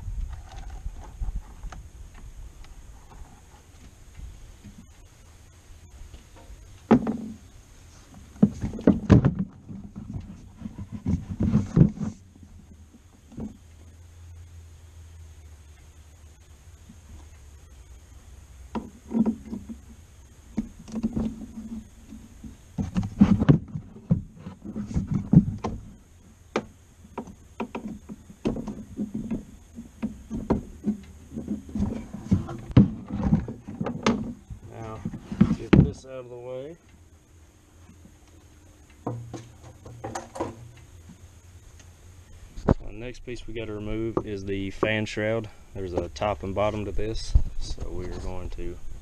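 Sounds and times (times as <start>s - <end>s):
hollow plastic knocks and scrapes: 6.3s - 7.4s, 8.1s - 12.3s, 18.7s - 19.9s, 20.5s - 36.0s, 39.0s - 41.2s.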